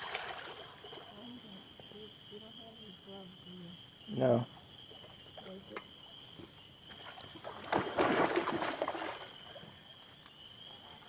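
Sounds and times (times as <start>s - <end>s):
bird splashing in water: 0.0s - 1.1s, 6.9s - 9.6s.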